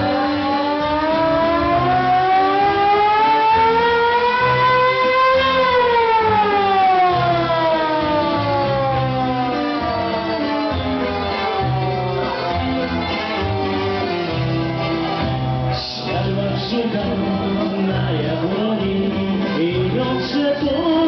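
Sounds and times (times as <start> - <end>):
siren wailing: 0.0 - 17.8
dance music with bass line: 0.0 - 21.0.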